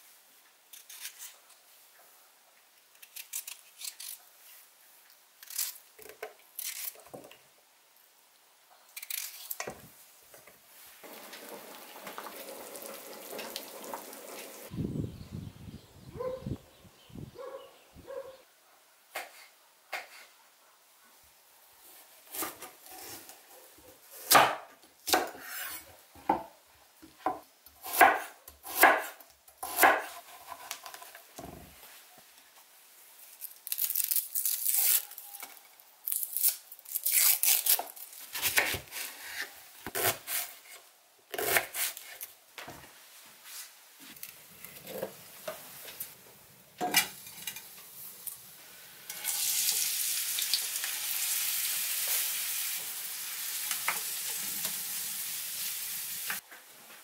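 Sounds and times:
onion sizzling in frying pan: 0:10.9 - 0:14.7, 0:46.9 - 0:56.4.

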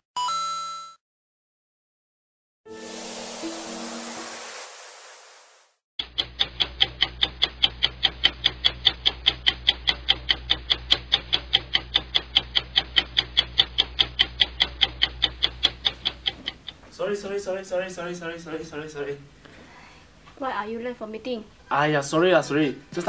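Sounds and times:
rapid clock ticking: 0:06.0 - 0:18.8.

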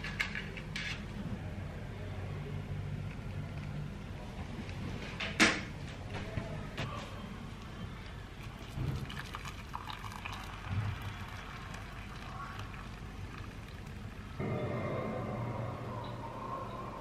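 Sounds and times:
low steady hum: 0:00.0 - 0:17.0
water pouring into mug: 0:08.4 - 0:14.3.

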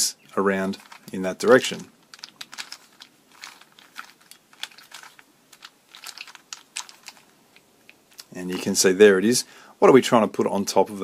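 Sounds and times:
puzzle cube clicking as turned: 0:00.8 - 0:08.3.

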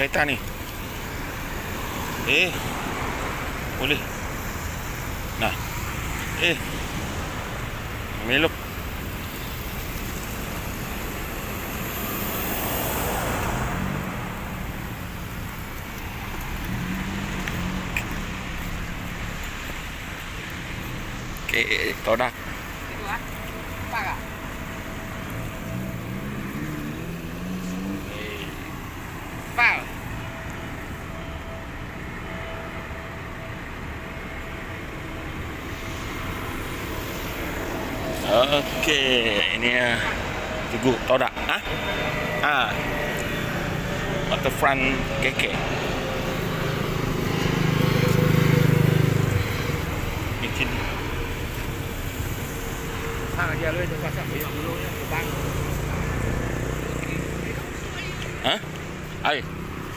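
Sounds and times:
city traffic rumble: 0:00.0 - 0:59.9
engine hum: 0:00.0 - 0:59.9.

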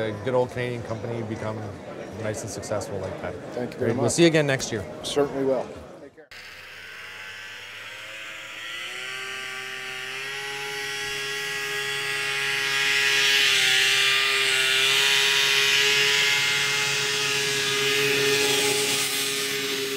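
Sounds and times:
machine-like whining drone: 0:06.3 - 0:19.9.

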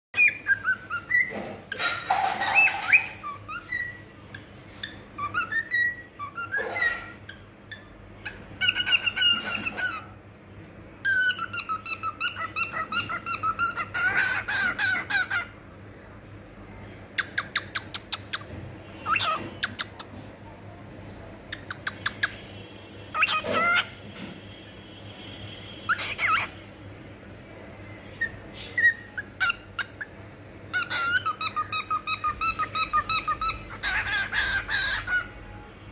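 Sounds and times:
cockatiel whistling and chattering: 0:00.2 - 0:10.1, 0:11.0 - 0:15.5, 0:17.2 - 0:20.2, 0:21.5 - 0:22.4, 0:23.1 - 0:24.0, 0:25.9 - 0:26.6, 0:28.2 - 0:35.4.

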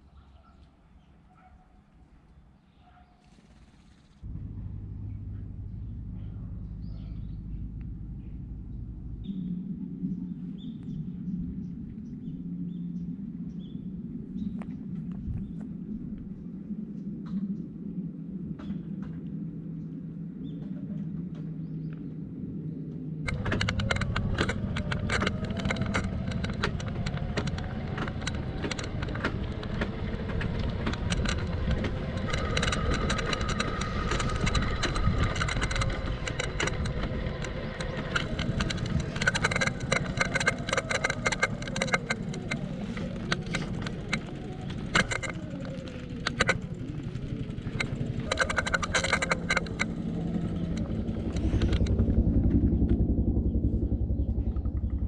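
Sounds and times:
bike rattling and clicking: 0:23.2 - 0:55.0
bicycle tyres rumbling: 0:23.3 - 0:55.0.

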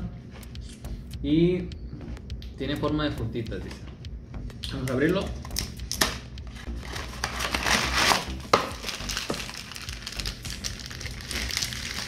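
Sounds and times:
plastic bag crinkling: 0:06.8 - 0:12.0
cardboard box tearing: 0:07.0 - 0:08.4.

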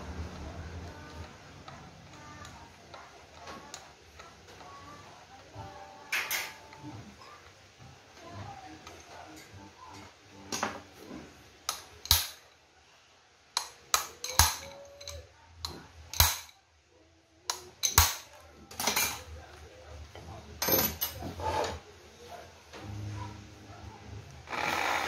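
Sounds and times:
metal tools clinking on workbench: 0:17.8 - 0:19.3, 0:20.6 - 0:21.2.

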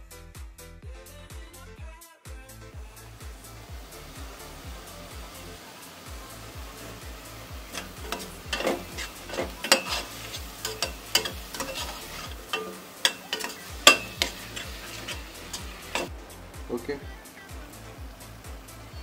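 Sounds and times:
onions sizzling in oil: 0:02.8 - 0:19.0
spatula scraping metal pot: 0:06.8 - 0:16.1.

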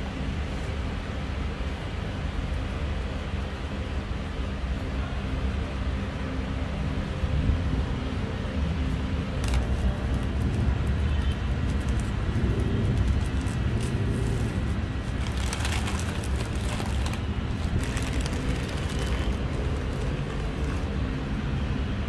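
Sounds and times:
road traffic rumble: 0:00.0 - 0:22.0
paper wrapper rustling: 0:09.4 - 0:21.2.

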